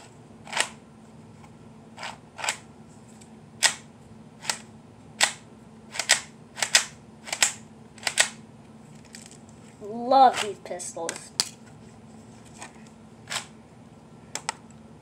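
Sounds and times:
plastic toy pistol clicks: 6.0s - 8.4s.

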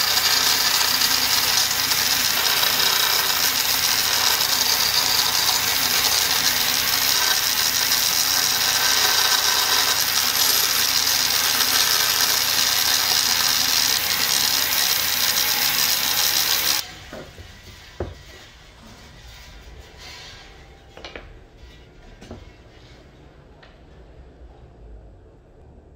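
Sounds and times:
power saw cutting wood: 0.0s - 16.9s.

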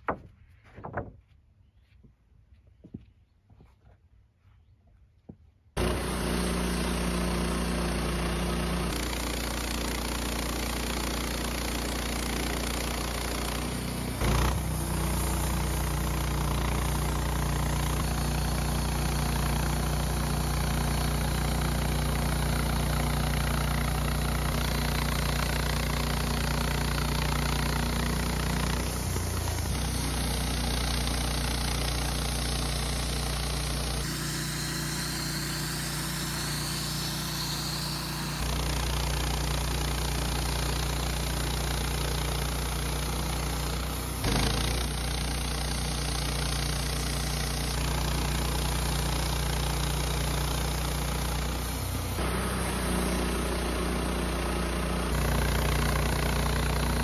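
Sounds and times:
band blade sawing log: 5.8s - 45.1s
sawmill engine humming: 5.8s - 57.0s.

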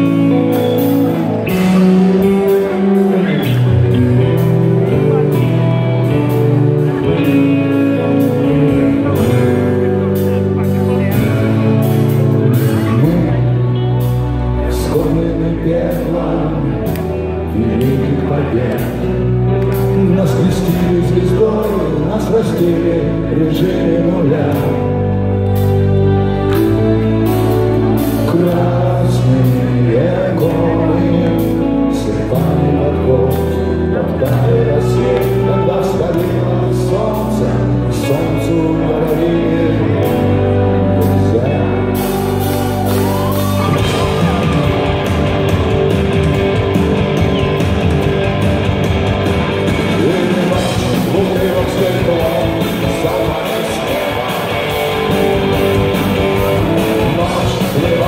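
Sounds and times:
man singing: 0.0s - 46.3s, 49.3s - 58.0s
long-held low chords: 0.0s - 58.0s
rock band with electric guitars: 0.0s - 58.0s.

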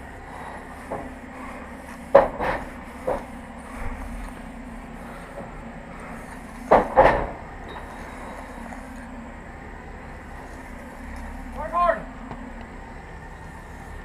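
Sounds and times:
low machine hum: 0.0s - 14.0s
sharp knocks: 2.1s - 3.3s, 6.7s - 7.8s.

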